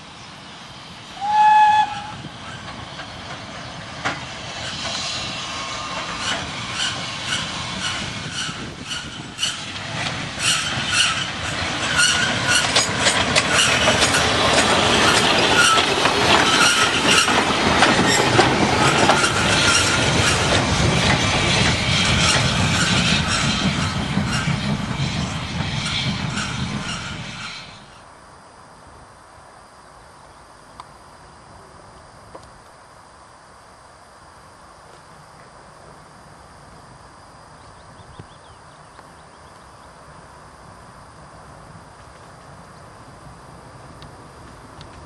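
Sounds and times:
steam locomotive whistle: 1.2s - 2.6s, 10.4s - 12.9s
train wheels clacking and squealing: 1.2s - 28.0s
steam engine beats: 4.0s - 27.9s.

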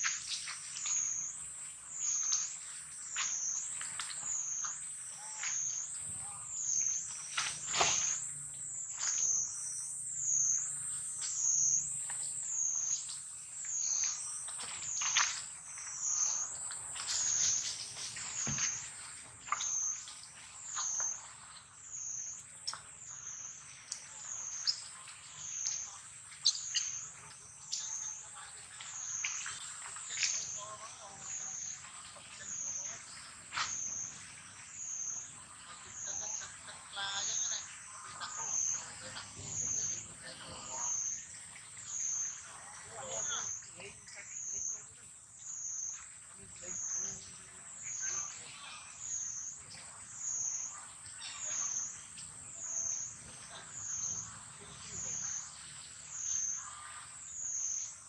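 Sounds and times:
high-pitched insect drone: 0.0s - 18.8s.

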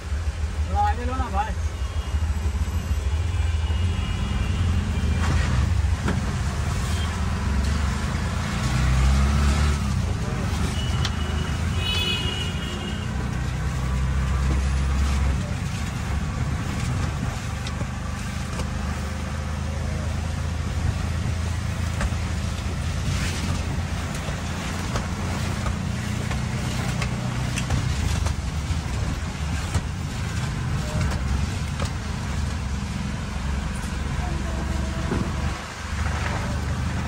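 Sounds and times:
auto rickshaw engine running: 0.0s - 37.0s
road and traffic noise: 0.0s - 37.0s.

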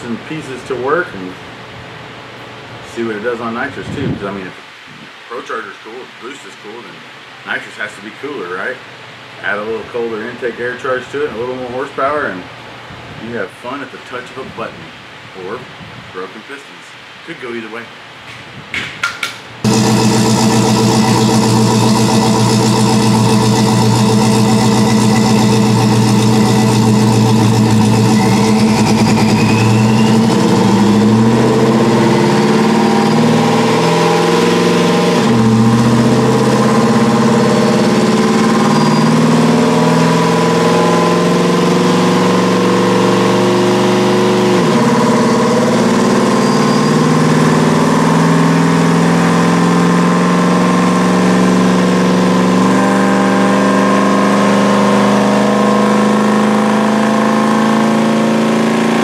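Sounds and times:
engine revving on a dyno: 19.6s - 59.0s.

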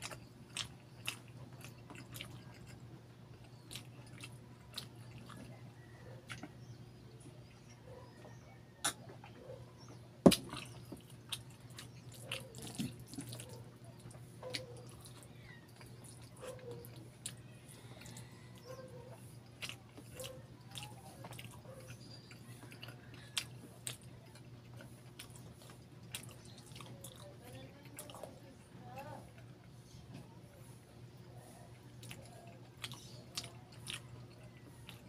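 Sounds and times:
faint low hum: 0.0s - 35.0s.

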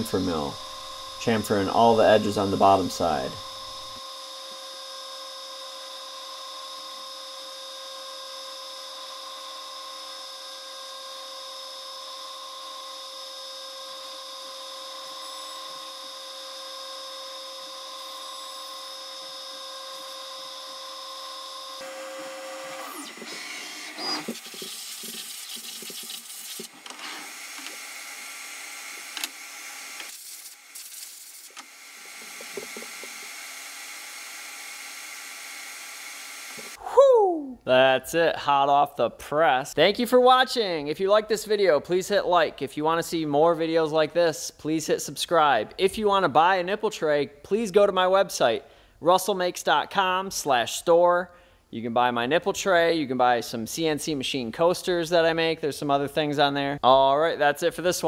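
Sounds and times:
milling machine spindle whine: 0.0s - 24.9s.

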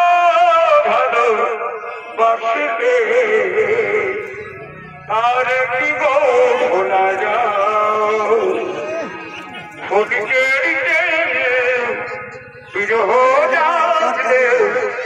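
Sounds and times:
wavering melody line: 3.2s - 14.3s.

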